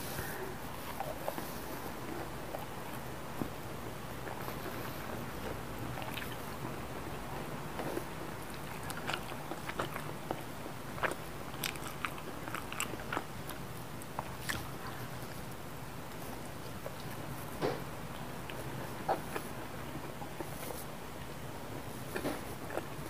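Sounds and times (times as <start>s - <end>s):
person chewing and biting food: 7.7s - 15.4s.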